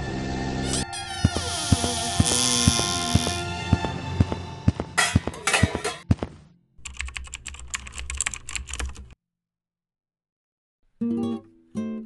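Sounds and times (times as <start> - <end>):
rapid keyboard typing: 6.8 - 9.2
plucked guitar notes: 11.0 - 12.0.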